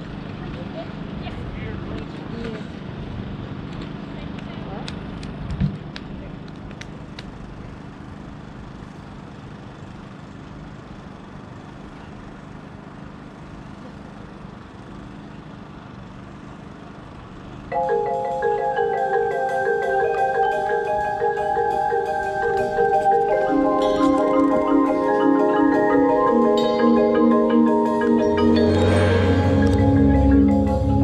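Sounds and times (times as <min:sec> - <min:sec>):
mallet keyboards playing chords: 0:17.7 - 0:31.0.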